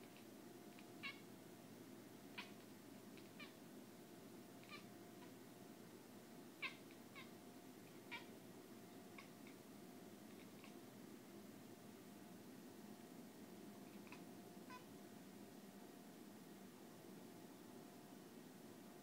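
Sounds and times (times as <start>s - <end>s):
cat chattering: 0.8s - 1.2s, 2.3s - 2.6s, 3.2s - 3.6s, 4.6s - 5.3s, 6.6s - 7.3s, 8.0s - 8.3s, 9.2s - 9.6s, 10.3s - 10.8s, 13.9s - 14.8s.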